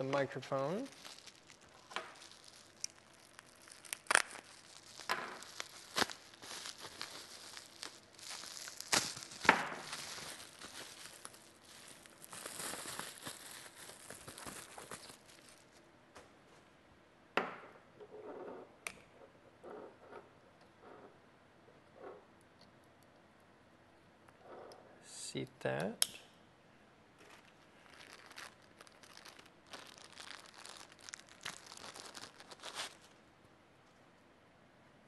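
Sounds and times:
plastic bag crinkling: 0:00.0 - 0:15.8, 0:27.2 - 0:33.2.

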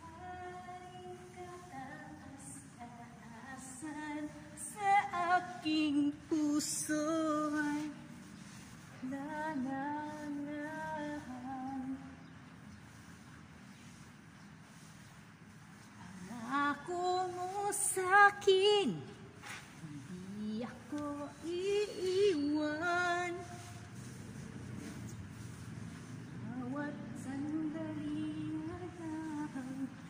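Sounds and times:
woman singing slow tune: 0:00.0 - 0:08.0, 0:09.1 - 0:12.2, 0:16.0 - 0:19.1, 0:19.8 - 0:23.5, 0:26.5 - 0:30.0.

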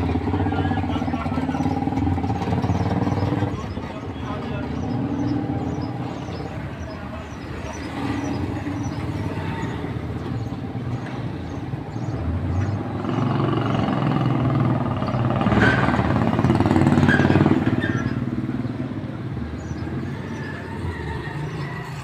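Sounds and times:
motorcycle engine passing: 0:12.6 - 0:19.0.

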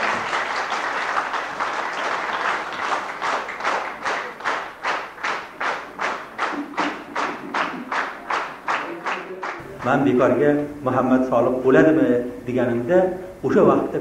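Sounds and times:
audience applauding: 0:00.0 - 0:10.4
rhythmic unison clapping: 0:00.0 - 0:10.6.

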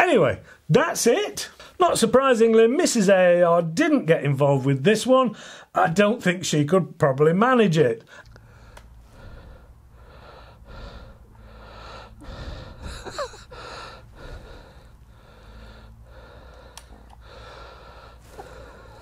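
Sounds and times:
woman breathing hard and gasping: 0:08.1 - 0:19.0
woman groaning: 0:12.8 - 0:13.8.

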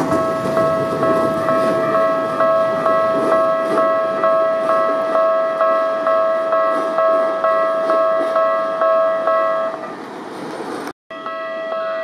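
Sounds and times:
level crossing warning bell: 0:00.0 - 0:10.1, 0:11.1 - 0:12.0.

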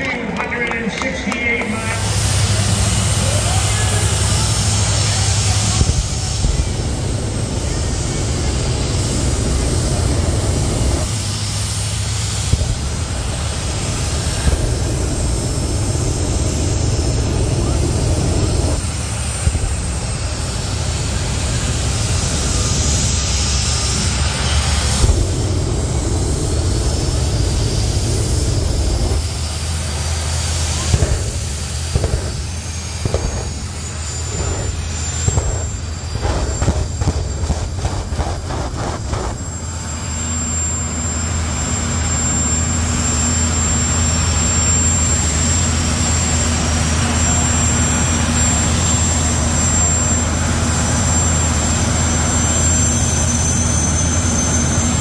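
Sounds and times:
high turbine whine: 0:00.0 - 0:55.0
jet turbine engine rumble: 0:00.0 - 0:55.0
rapid engine pulses: 0:00.0 - 0:55.0.

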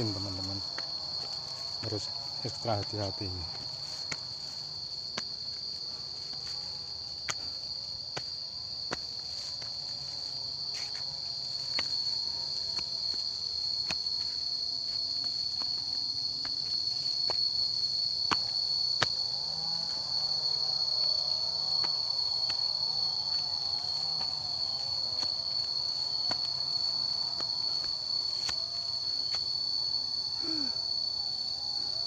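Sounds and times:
insects buzzing: 0:00.0 - 0:32.0
footsteps on rocky path: 0:00.1 - 0:02.3, 0:03.5 - 0:17.6, 0:23.4 - 0:28.6.

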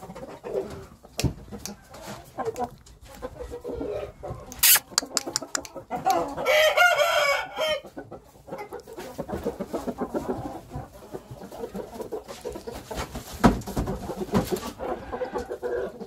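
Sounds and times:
chickens clucking: 0:00.0 - 0:16.0
rooster crowing: 0:06.4 - 0:07.8.

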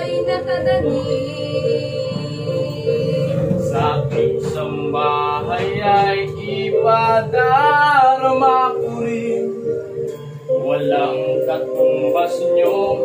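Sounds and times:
boy singing: 0:00.0 - 0:09.5
instrumental backing track: 0:00.0 - 0:13.0.

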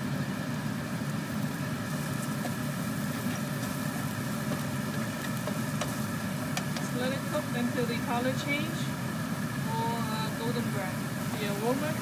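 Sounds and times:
low mechanical hum: 0:00.0 - 0:12.0
onion sizzling in hot oil: 0:00.0 - 0:12.0
spatula clicking against pan: 0:05.2 - 0:06.9.

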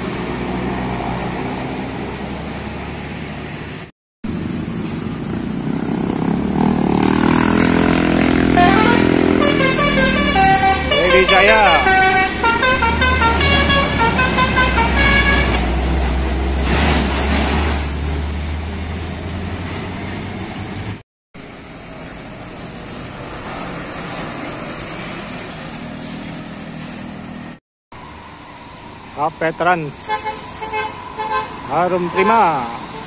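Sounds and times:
bus diesel engine: 0:00.0 - 0:33.0
truck diesel engine approaching: 0:00.0 - 0:33.0
multi-tone bus horn tune: 0:07.7 - 0:15.8, 0:30.0 - 0:31.6.

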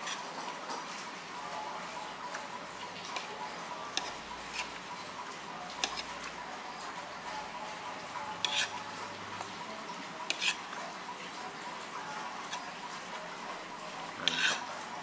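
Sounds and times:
cutlery clinking against a plate: 0:00.0 - 0:01.1, 0:03.0 - 0:05.0, 0:05.6 - 0:06.3, 0:08.2 - 0:09.6, 0:10.2 - 0:10.8, 0:14.2 - 0:14.8
eatery background noise: 0:00.0 - 0:15.0.

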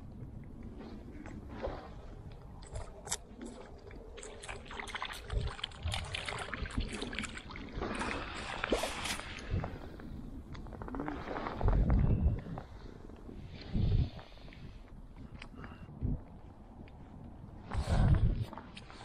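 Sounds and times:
fish splashing in water: 0:02.7 - 0:09.5.

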